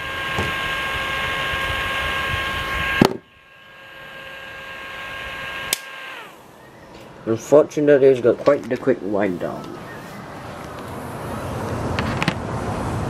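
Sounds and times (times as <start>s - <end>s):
small motor whine: 0.0s - 7.2s
click: 5.7s - 5.9s.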